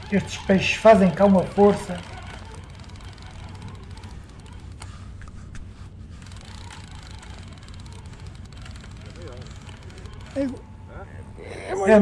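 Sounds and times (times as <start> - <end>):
fishing reel clicks: 0.0 - 4.9, 6.3 - 10.5.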